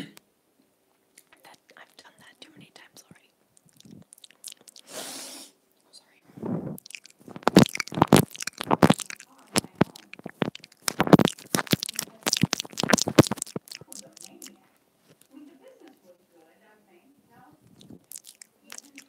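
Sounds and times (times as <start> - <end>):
wet mouth clicks: 1.2 - 2.0, 3.6 - 5.0, 6.6 - 14.6, 17.7 - 19.0
teeth nibbling on microphone: 1.2 - 4.9, 6.4 - 14.6, 17.6 - 19.0.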